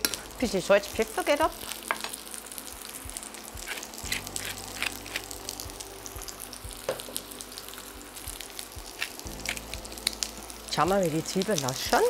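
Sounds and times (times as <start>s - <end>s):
onions sizzling in a pan: 0.0s - 12.0s.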